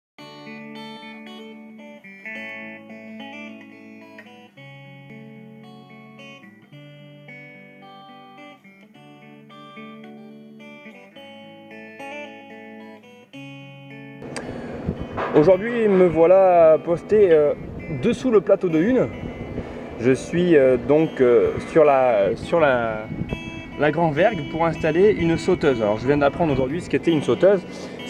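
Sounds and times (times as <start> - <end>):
guitar playing plucked melody: 0.2 - 28.0.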